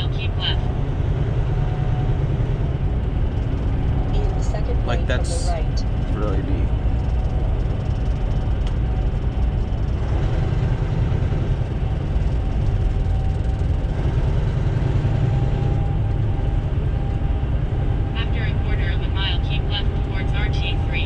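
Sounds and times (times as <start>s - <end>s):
truck engine and road noise: 0.0s - 21.0s.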